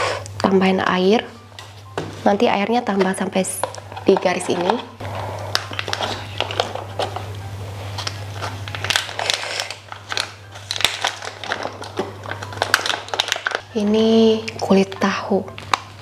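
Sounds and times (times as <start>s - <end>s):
foil pouch crinkling: 5.1s - 13.8s.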